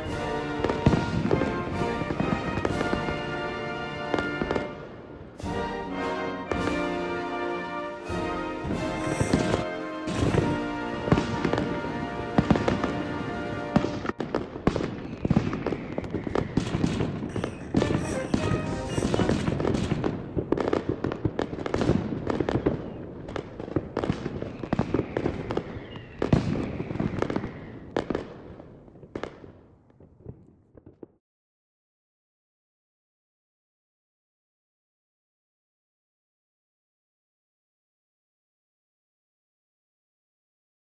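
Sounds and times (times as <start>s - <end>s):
music: 0.0s - 14.2s, 17.6s - 19.7s
fireworks bangs and crackles: 0.0s - 31.2s.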